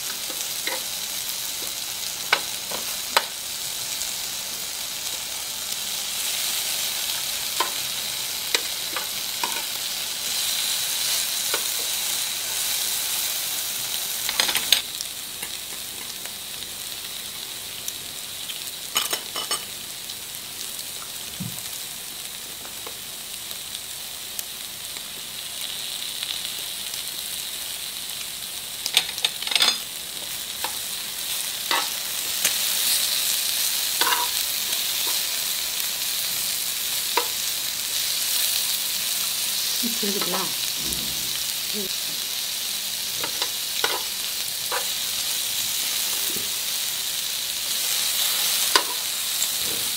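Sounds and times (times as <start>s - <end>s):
food sizzling on grill plate: 0.0s - 49.9s
metal tongs clicking on pan: 28.8s - 29.8s, 31.7s - 32.6s, 34.0s - 34.4s, 43.2s - 44.1s, 48.7s - 49.0s.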